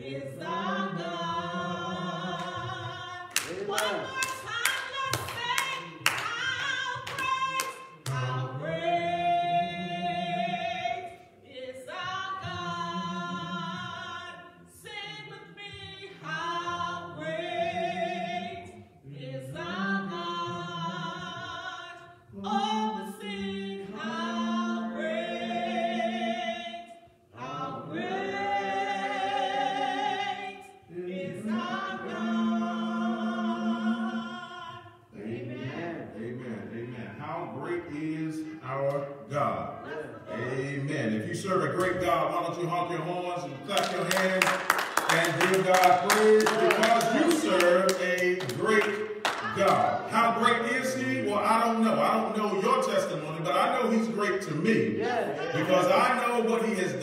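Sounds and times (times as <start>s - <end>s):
gospel singing: 0.0s - 57.0s
hand claps: 3.3s - 8.2s, 43.7s - 49.9s.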